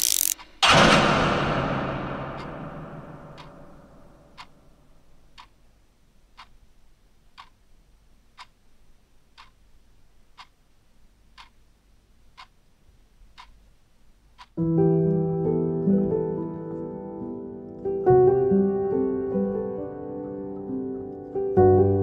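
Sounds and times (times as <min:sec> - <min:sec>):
clock ticking: 0:00.0 - 0:04.7, 0:05.3 - 0:07.7, 0:08.3 - 0:10.7, 0:11.3 - 0:11.7, 0:12.3 - 0:14.6.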